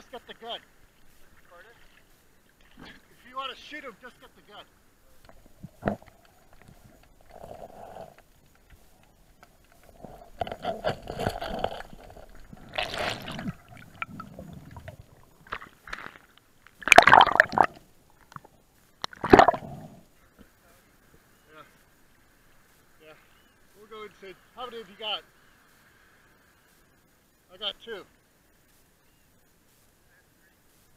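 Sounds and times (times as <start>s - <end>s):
water gurgling and bubbling: 9.9s - 15.7s, 16.8s - 17.8s, 19.0s - 20.0s.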